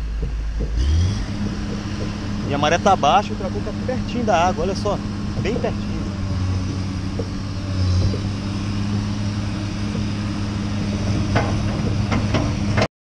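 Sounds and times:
sharp knocks: 0.0 - 3.8, 4.7 - 12.9
excavator diesel engine droning: 0.0 - 12.9.

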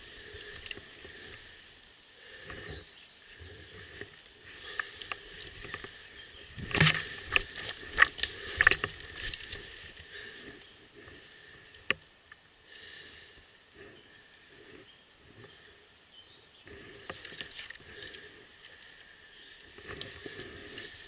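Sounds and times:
twigs crackling and snapping: 0.0 - 1.5, 3.7 - 12.4, 16.7 - 21.0.

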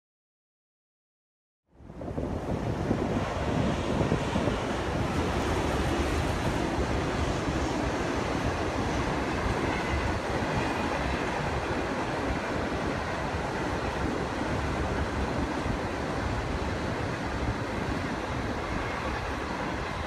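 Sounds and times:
train wheels rumbling on track: 1.9 - 20.0.

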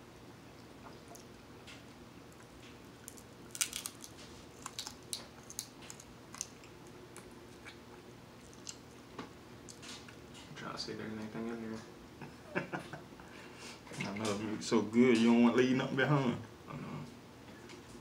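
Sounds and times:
chewing: 0.5 - 1.4, 2.3 - 10.5
crab shell cracking: 2.4 - 7.8, 8.4 - 9.0.

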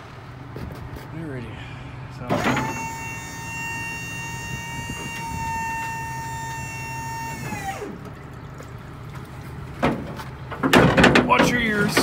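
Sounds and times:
hydraulic pump motor whining: 2.2 - 9.2.

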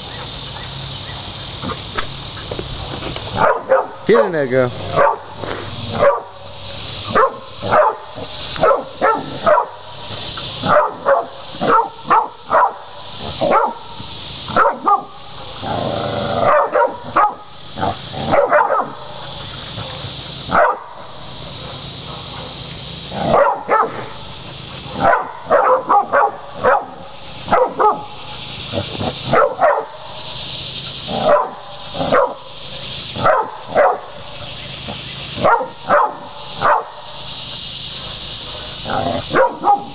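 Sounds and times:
dogs barking sharply: 3.3 - 4.1, 4.9 - 6.4, 7.1 - 9.8, 10.6 - 13.9, 14.5 - 15.6, 16.4 - 30.1, 31.0 - 32.5, 33.2 - 34.2, 34.8 - 37.2, 38.1 - 39.9.

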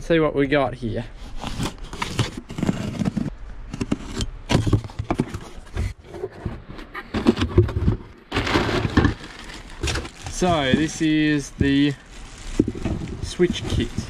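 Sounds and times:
packing paper rustling: 8.3 - 14.0.

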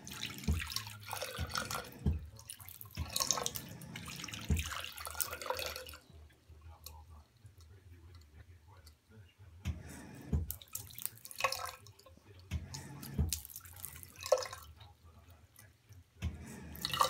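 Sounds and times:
faucet water splashing into sink: 0.0 - 6.0, 9.8 - 14.9, 16.2 - 17.0.

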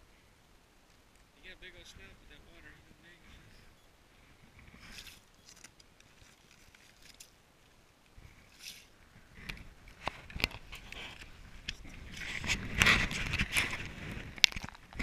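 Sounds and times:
ice clicking and crunching: 13.0 - 15.0.

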